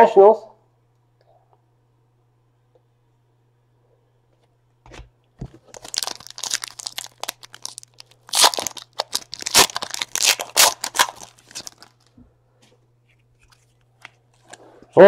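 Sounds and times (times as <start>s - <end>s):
foil wrapper crinkling: 5.6s - 12.1s.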